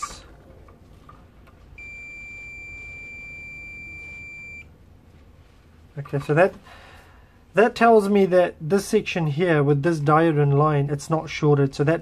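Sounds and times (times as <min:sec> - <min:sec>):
multimeter high-pitched beep: 0:01.8 - 0:04.7.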